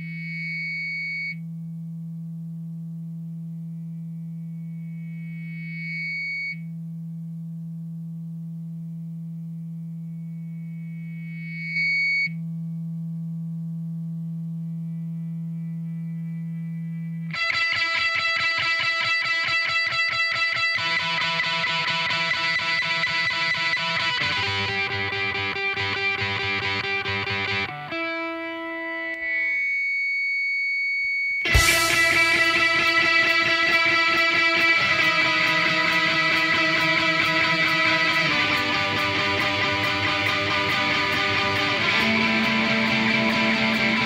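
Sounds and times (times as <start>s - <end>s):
loud distorted electric guitar: 17.3s - 29.5s, 31.4s - 44.0s
higher tone: 31.3s - 44.0s
droning electric guitar note: 31.4s - 44.0s.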